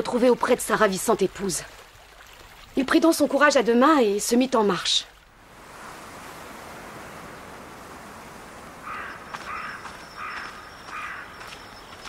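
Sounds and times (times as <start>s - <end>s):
wind-like hiss: 5.3s - 10.4s
crow cawing: 8.8s - 11.6s.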